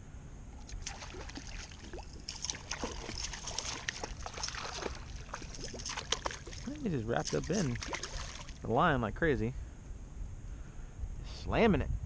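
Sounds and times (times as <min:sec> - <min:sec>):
fish splashing at water surface: 0:00.6 - 0:08.6.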